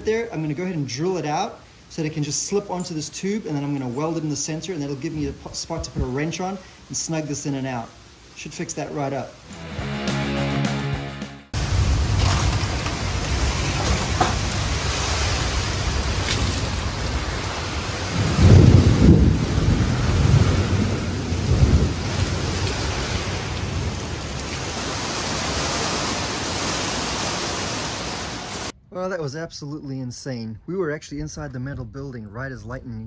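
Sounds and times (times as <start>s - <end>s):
rolling thunder: 11.6s - 24.8s
heavy rain pouring: 11.6s - 28.7s.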